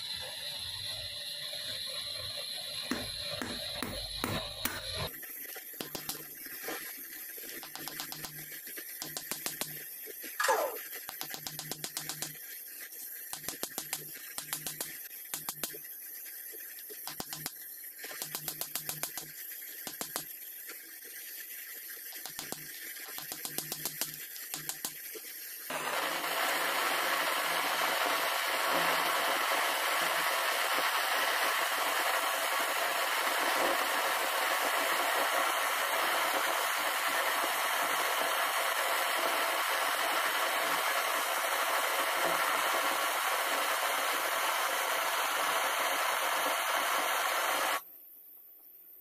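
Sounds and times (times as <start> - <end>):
loud steady hiss: 0.0 - 47.9
sharp clicks: 7.6 - 8.4, 9.0 - 9.8, 11.1 - 12.4, 13.4 - 15.8, 17.1 - 17.5, 18.1 - 19.3, 19.9 - 20.3, 22.1 - 25.0.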